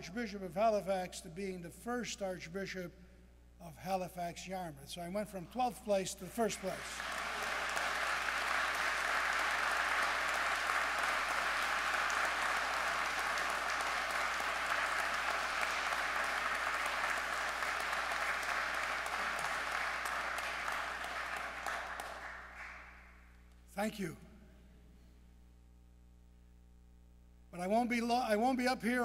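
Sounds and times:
crowd applauding: 6.6 - 23.3.

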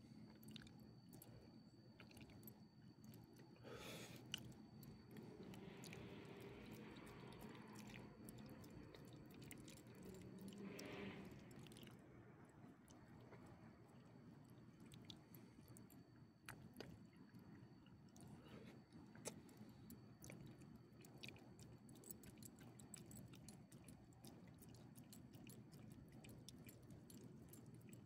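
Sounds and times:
dog chewing and licking: 20.2 - 28.0.

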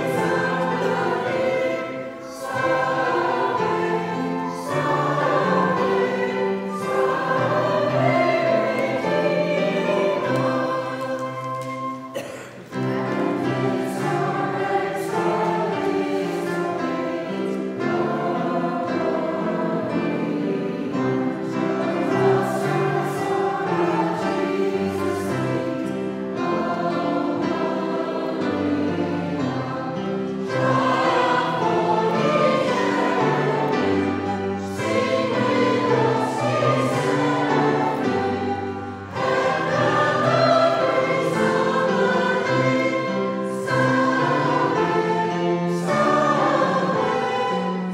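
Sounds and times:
congregation singing a hymn: 0.0 - 47.9.

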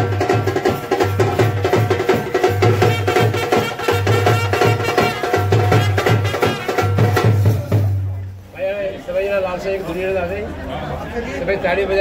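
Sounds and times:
brass band playing folk tune: 2.7 - 7.6.

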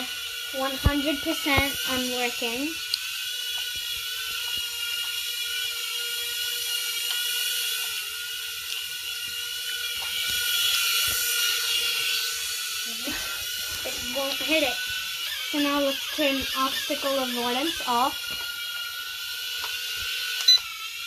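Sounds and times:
drone propellers buzzing: 0.0 - 21.0.

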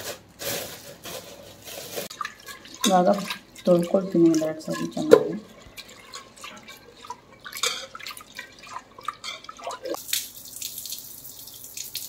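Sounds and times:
water sloshing and splashing: 0.7 - 12.0
water pouring in a stream: 5.7 - 12.0.

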